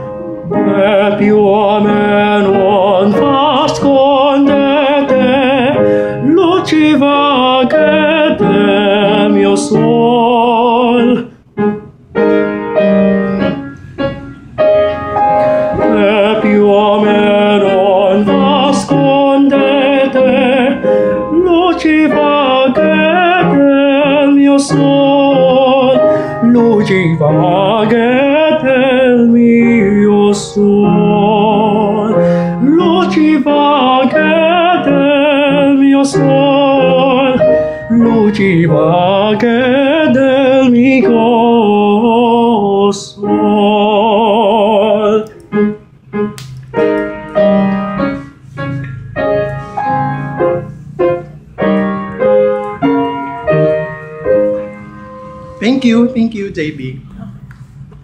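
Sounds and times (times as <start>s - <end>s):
piano accompaniment: 0.0s - 58.0s
man singing opera: 0.5s - 11.4s, 15.7s - 45.8s.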